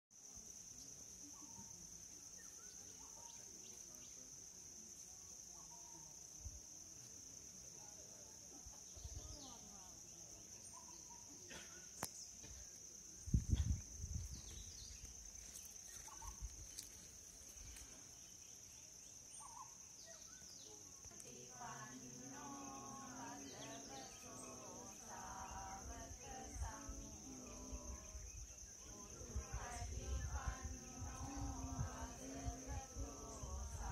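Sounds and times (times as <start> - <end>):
faint chirps: 0.1 - 33.9
insects droning: 0.1 - 33.9
soft low thump: 13.4 - 14.7
faint voices talking: 20.8 - 33.9.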